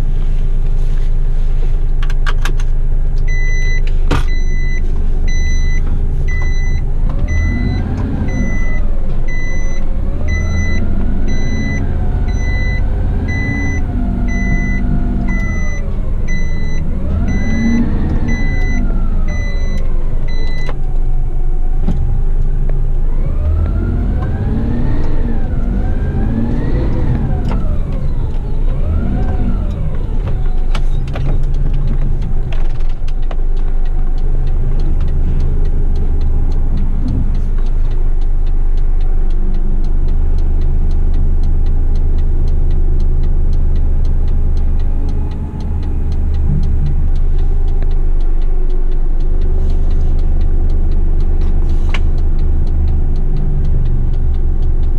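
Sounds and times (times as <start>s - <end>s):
faint regular ticking: 3.2s - 54.9s
reversing beeper: 3.3s - 20.8s
truck engine revving: 3.3s - 54.9s.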